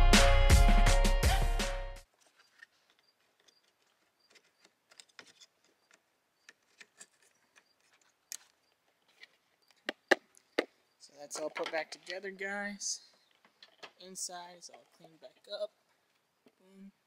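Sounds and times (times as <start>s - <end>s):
background music: 0.0s - 2.0s
clicks of handling plastic parts: 11.3s - 12.3s, 13.1s - 14.0s.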